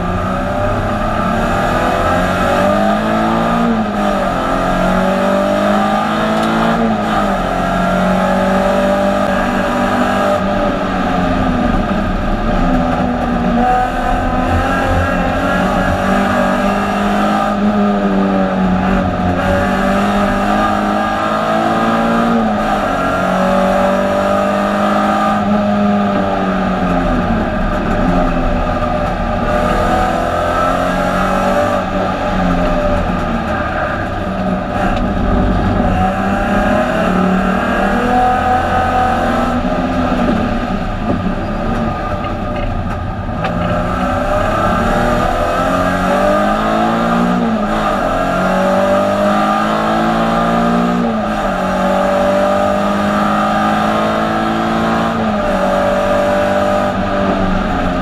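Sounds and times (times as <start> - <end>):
racing car engine revving: 0.0 - 58.0.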